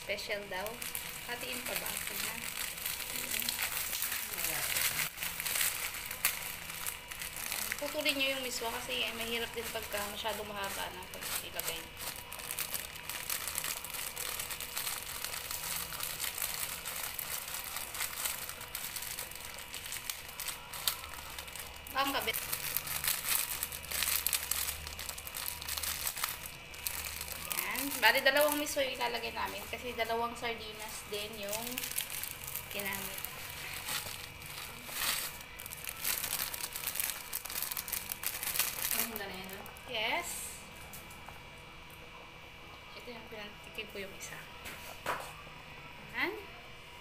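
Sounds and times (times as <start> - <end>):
plastic bag crinkling: 0.0 - 39.9
dry noodles breaking: 0.8 - 8.2, 8.8 - 29.1, 31.3 - 39.6.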